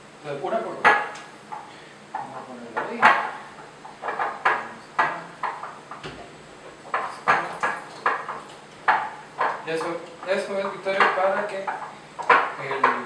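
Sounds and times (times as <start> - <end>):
utensil clinking against bowl: 6.9 - 13.0.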